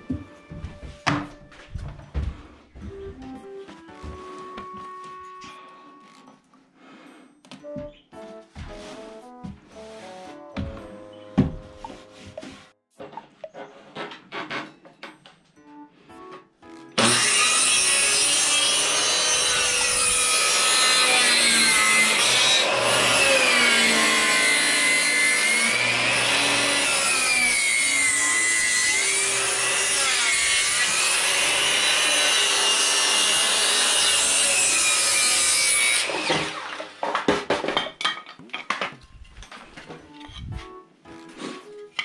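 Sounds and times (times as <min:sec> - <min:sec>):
power saw cutting wood: 0:16.9 - 0:37.1.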